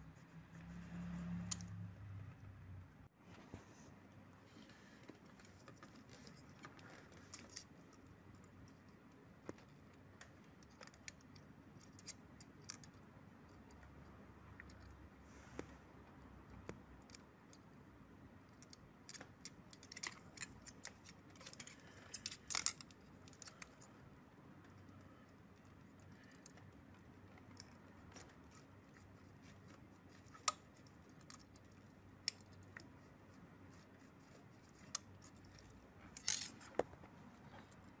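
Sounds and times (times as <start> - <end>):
metal blade scraping and clicking: 34.2 - 36.7.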